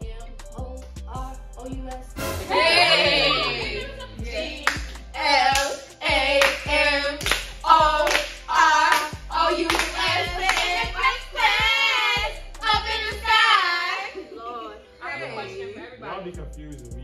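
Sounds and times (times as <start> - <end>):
bass line: 0.0 - 13.5, 16.1 - 17.0
person singing: 2.2 - 4.6
handclaps: 4.6 - 5.8, 6.4 - 10.8.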